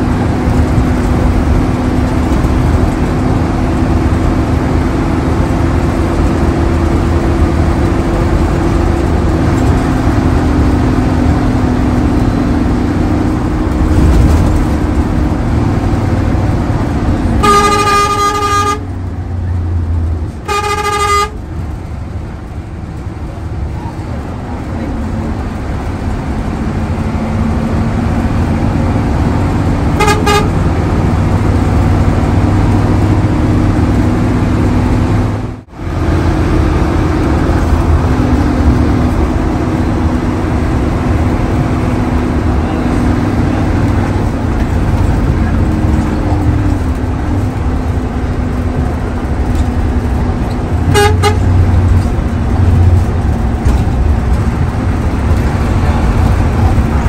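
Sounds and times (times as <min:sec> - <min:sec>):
bus engine shifting gears: 0:00.0 - 0:57.0
bus horn toot: 0:17.1 - 0:19.1, 0:20.3 - 0:21.5, 0:29.9 - 0:31.6, 0:50.8 - 0:51.9.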